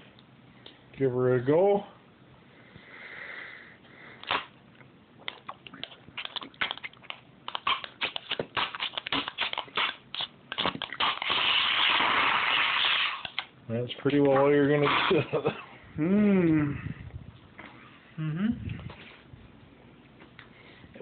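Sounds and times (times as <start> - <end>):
wet clicks and smacks: 4.2 - 11.4
sucking through plastic funnel: 5.3 - 13.4
spoon scraping on plastic: 5.8 - 11.5.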